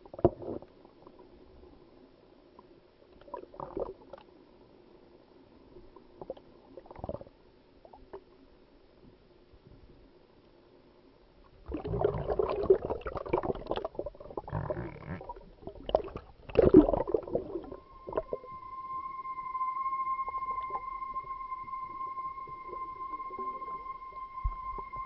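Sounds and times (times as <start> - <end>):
water sloshing and bubbling: 0.0 - 4.8, 5.5 - 8.5, 11.4 - 19.4
steady high music tone: 17.2 - 25.0.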